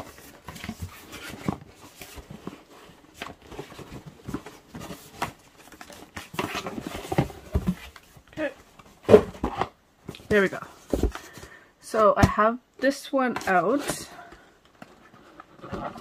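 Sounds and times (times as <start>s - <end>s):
cardboard box handled: 0.0s - 11.5s.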